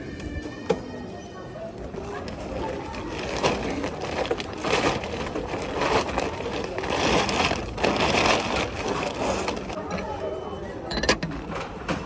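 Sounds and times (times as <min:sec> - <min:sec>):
plastic shopping bag rustling: 0:02.0 - 0:10.0.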